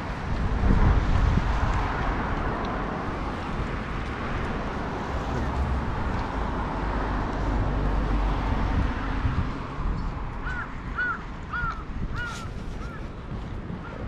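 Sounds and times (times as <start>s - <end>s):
wind rumbling on microphone: 0.0s - 14.0s
bird cawing: 10.4s - 13.0s.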